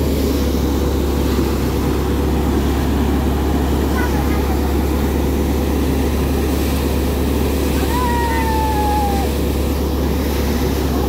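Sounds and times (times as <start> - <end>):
thresher machine droning: 0.0 - 11.0
long high falling call: 7.8 - 9.4.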